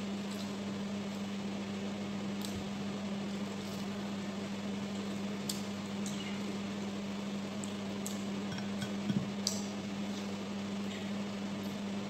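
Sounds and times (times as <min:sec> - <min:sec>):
electrical appliance hum: 0:00.0 - 0:12.0
fingers clicking on ceramic bowls: 0:08.5 - 0:09.6.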